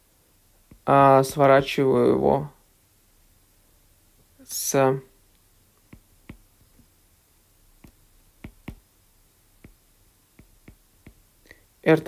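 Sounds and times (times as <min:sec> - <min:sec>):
stylus tapping on tablet: 0:00.7 - 0:00.9, 0:05.9 - 0:06.9, 0:07.8 - 0:08.9, 0:09.6 - 0:11.3.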